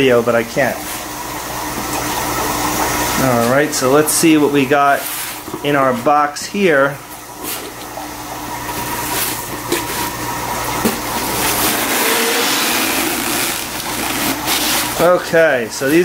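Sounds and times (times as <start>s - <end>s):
cardboard and foam rustling: 11.4s - 15.1s.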